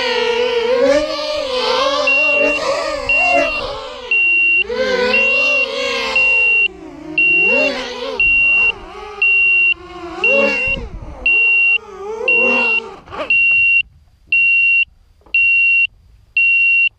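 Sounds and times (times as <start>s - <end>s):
quadcopter motors whining: 0.0s - 13.8s
electronic beeper high tone: 2.0s - 13.8s.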